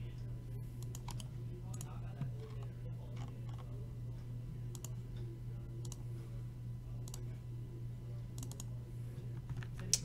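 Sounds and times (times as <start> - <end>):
steady low hum: 0.0 - 10.0
computer mouse clicks: 5.8 - 6.0, 8.4 - 8.7.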